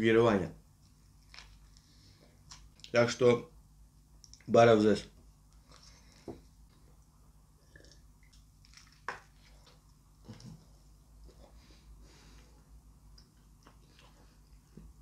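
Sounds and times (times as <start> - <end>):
quiet chewing: 0.8 - 3.0, 4.2 - 4.5, 5.5 - 15.0.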